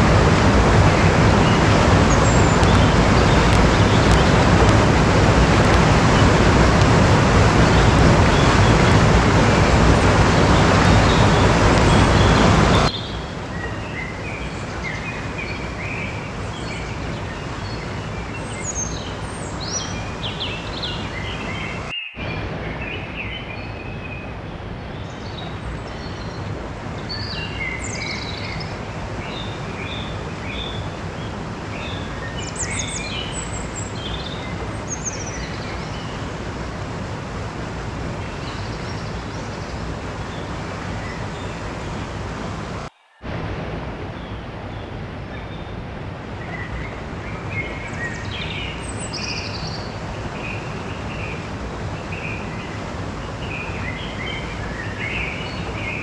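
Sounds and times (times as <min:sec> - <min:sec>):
small birds chirping: 0:00.0 - 0:36.5, 0:44.1 - 0:56.0
stream rushing over rocks: 0:00.0 - 0:56.0.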